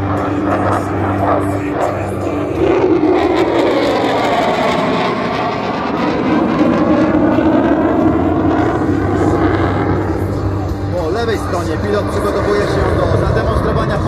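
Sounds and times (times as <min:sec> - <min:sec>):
jet engine roar flying past: 0:00.0 - 0:14.0.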